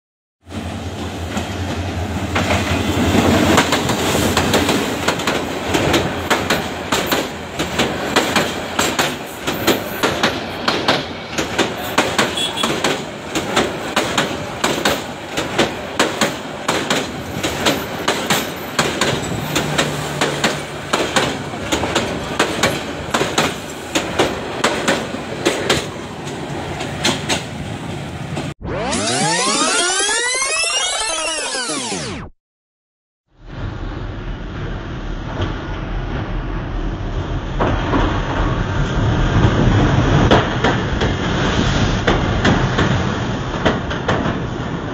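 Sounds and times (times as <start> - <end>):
diesel locomotive engine droning: 0.5 - 28.5
train wheels clattering over rail joints: 1.3 - 28.5, 37.6 - 44.7.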